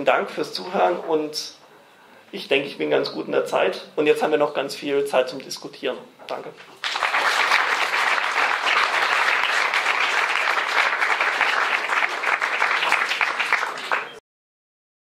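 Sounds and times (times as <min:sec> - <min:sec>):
audience applauding: 0:06.8 - 0:14.2.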